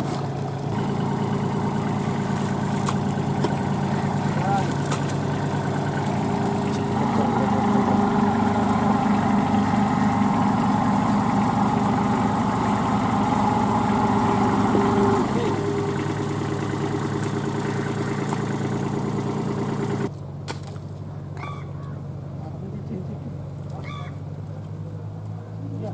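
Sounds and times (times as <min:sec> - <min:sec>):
tractor diesel engine running: 0:00.0 - 0:25.9.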